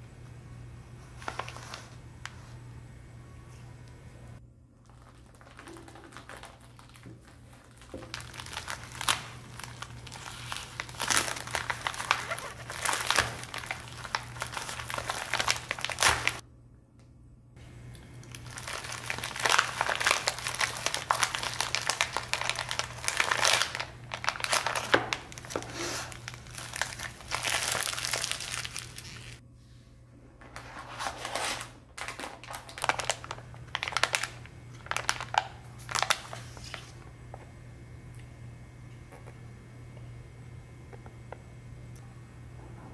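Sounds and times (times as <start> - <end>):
low steady hum: 0.0 - 42.9
plastic packaging crinkling: 1.2 - 2.0, 4.8 - 16.4, 17.9 - 29.4, 30.4 - 37.0.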